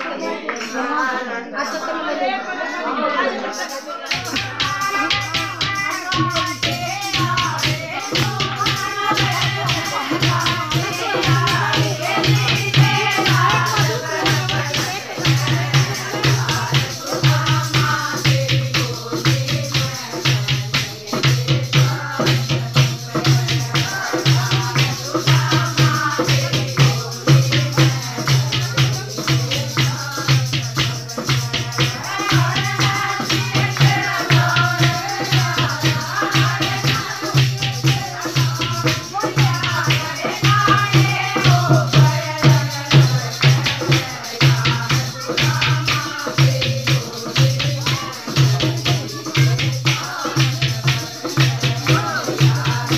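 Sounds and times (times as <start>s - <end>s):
hand-clapping: 0.0s - 0.8s, 4.1s - 16.7s
women singing: 0.0s - 52.9s
fast drum beat: 4.1s - 52.9s.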